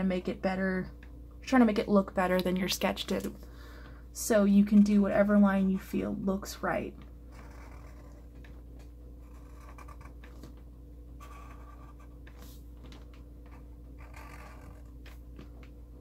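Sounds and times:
steady low hum: 0:00.0 - 0:16.0
marker scratching on paper: 0:07.3 - 0:08.4, 0:09.2 - 0:10.4, 0:11.2 - 0:12.6, 0:13.5 - 0:15.2.

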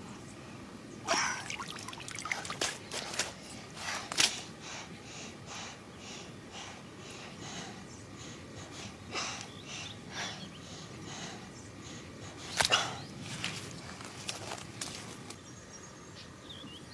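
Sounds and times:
water splashing and trickling: 0:01.1 - 0:03.4.

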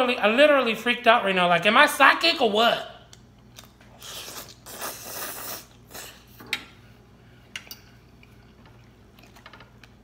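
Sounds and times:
person chewing: 0:03.4 - 0:06.4.

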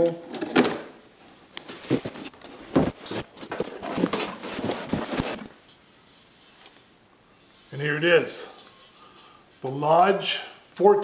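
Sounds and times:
cardboard box being opened: 0:01.8 - 0:05.5.

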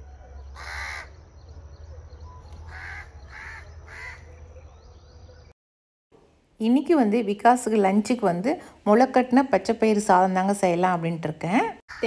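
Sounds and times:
crow cawing: 0:00.6 - 0:01.1, 0:02.7 - 0:04.3.

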